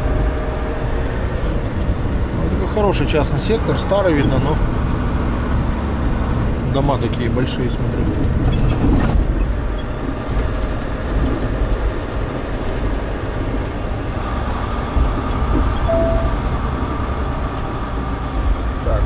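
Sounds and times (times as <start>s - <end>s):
truck engine and tyre rumble: 0.0s - 19.0s
short beep: 15.9s - 16.5s.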